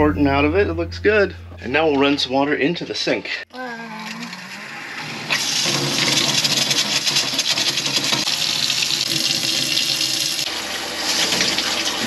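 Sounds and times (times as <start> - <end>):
water pump humming: 3.6 - 12.0
water streaming into steel sink: 4.0 - 12.0.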